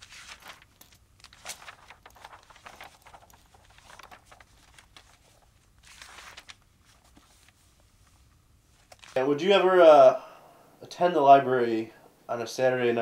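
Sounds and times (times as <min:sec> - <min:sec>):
page turning swish: 0:00.0 - 0:07.7, 0:08.8 - 0:09.2
book pages rustling: 0:00.0 - 0:09.3.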